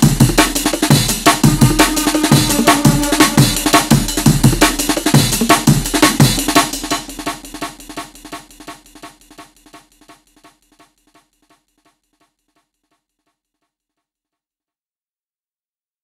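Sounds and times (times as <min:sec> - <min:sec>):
electronic dance music: 0:00.9 - 0:04.8.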